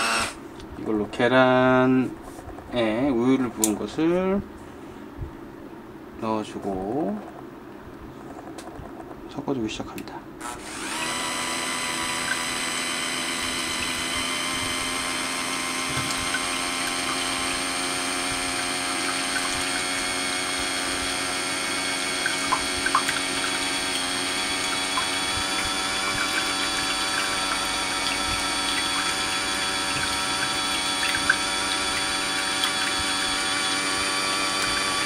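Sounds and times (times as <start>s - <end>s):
hand mixer motor whine: 0.0s - 0.4s, 10.4s - 35.0s.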